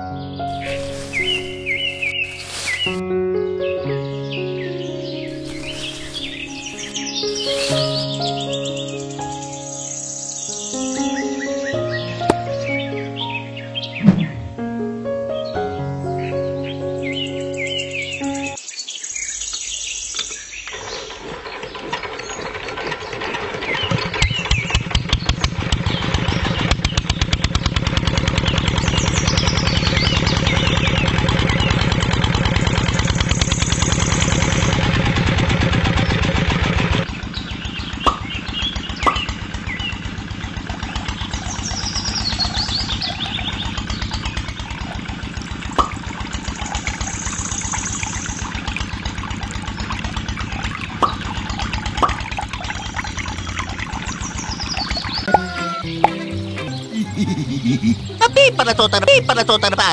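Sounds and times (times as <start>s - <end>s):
engine chugging: 0.5s - 3.0s, 5.3s - 9.4s, 21.0s - 59.9s.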